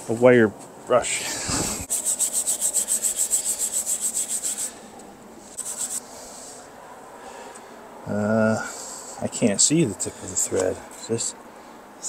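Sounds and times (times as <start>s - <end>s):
wire brush scrubbing bolt threads: 1.9s - 4.8s.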